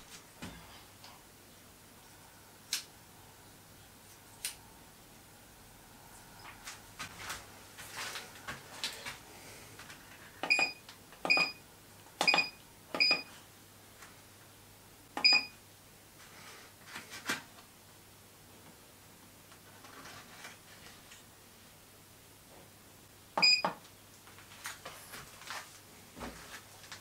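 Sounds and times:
keypad beeps: 0:10.4 - 0:11.6, 0:12.2 - 0:13.3, 0:15.2 - 0:15.6, 0:23.4 - 0:23.7.

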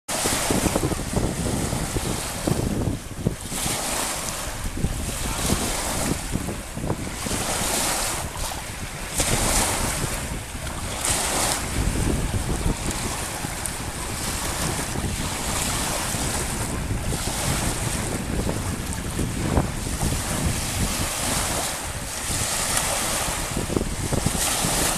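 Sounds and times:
waves washing on pebble shore: 0:00.1 - 0:24.9
wind buffeting microphone: 0:00.1 - 0:24.9.

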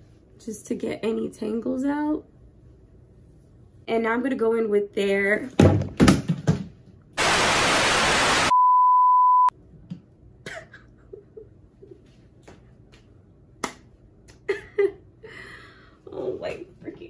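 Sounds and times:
white noise static burst: 0:07.2 - 0:08.6
censor bleep tone: 0:08.4 - 0:09.5.

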